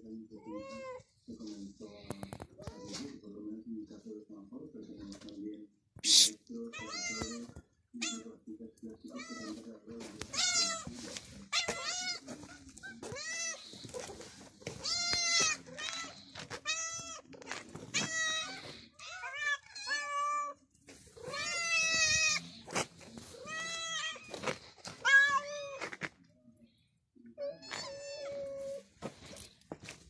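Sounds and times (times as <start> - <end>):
cats meowing: 0.3 - 1.1, 6.1 - 8.4, 9.0 - 26.0, 27.3 - 28.9.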